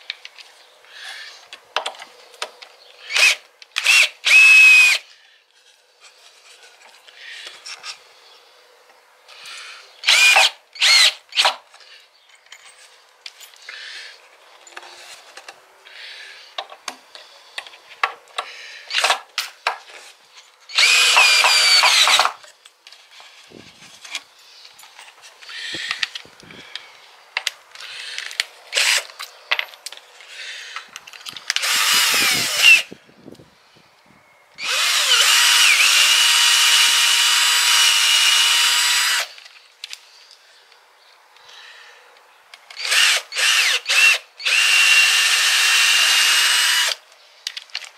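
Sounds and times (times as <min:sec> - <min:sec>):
power drill running: 0:03.1 - 0:05.0, 0:10.0 - 0:11.4, 0:20.7 - 0:22.3, 0:28.8 - 0:29.0, 0:31.6 - 0:32.9, 0:34.6 - 0:39.3, 0:42.8 - 0:47.0.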